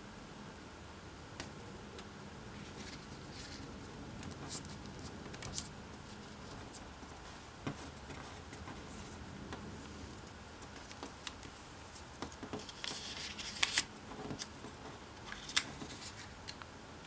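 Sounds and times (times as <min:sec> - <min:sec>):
steady low background hiss: 0:00.0 - 0:17.0
paper being folded: 0:02.5 - 0:09.2, 0:10.2 - 0:16.6.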